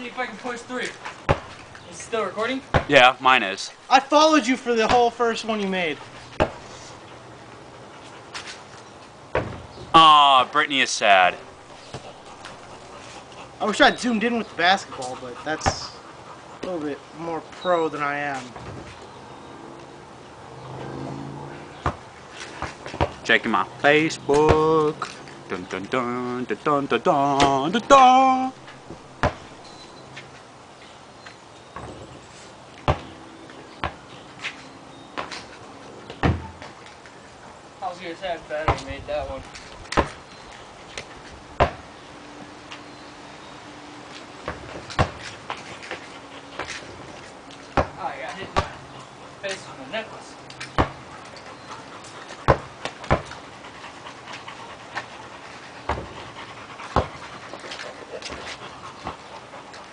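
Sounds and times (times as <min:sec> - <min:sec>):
basketball bouncing on asphalt: 0:01.2 - 0:01.7, 0:02.7 - 0:02.9, 0:06.3 - 0:06.6, 0:09.3 - 0:09.8, 0:21.8 - 0:23.3, 0:28.9 - 0:29.6, 0:32.8 - 0:33.2, 0:33.8 - 0:34.1, 0:36.1 - 0:36.8, 0:38.6 - 0:39.0, 0:39.8 - 0:40.2, 0:41.6 - 0:41.9, 0:44.4 - 0:46.0, 0:46.6 - 0:48.8, 0:50.6 - 0:51.1, 0:52.4 - 0:53.4, 0:55.8 - 0:56.2, 0:56.9 - 0:57.2
dog panting: 0:05.3 - 0:08.8, 0:11.6 - 0:18.6, 0:45.1 - 0:59.9.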